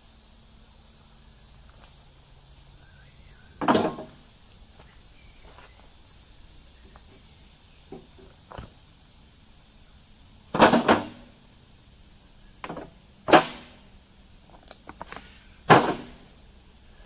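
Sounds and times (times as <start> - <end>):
knocks and thumps: 3.6 - 4.2.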